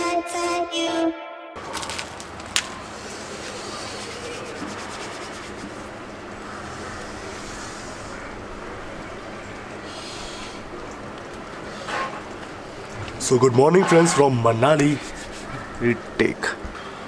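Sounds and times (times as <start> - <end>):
steady background hiss: 1.6 - 17.0
hands rubbing together: 1.7 - 6.0, 14.8 - 15.6.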